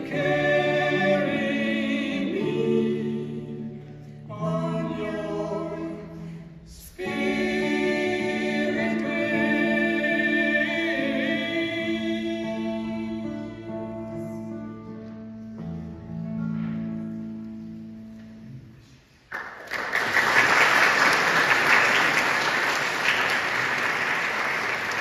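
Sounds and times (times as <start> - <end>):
audience applause: 19.3 - 25.0.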